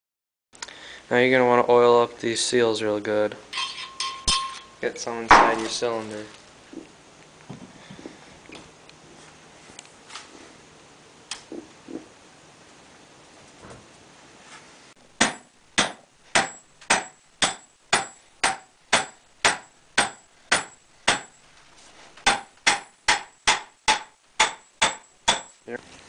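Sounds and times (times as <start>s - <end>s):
hammer striking metal rod: 3.5s - 5.7s, 15.2s - 21.4s, 22.2s - 25.6s.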